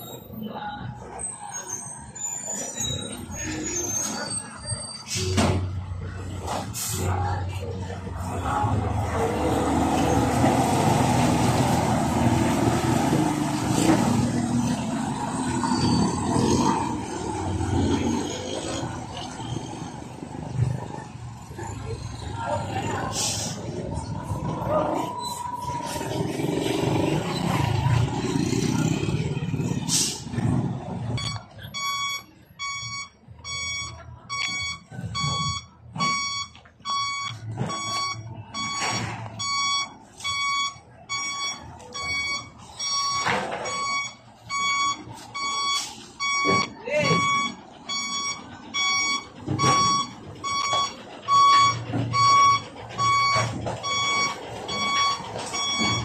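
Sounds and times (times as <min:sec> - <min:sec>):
diesel truck engine running: 0:00.0 - 0:56.0
reversing alarm beeping: 0:30.9 - 0:56.0.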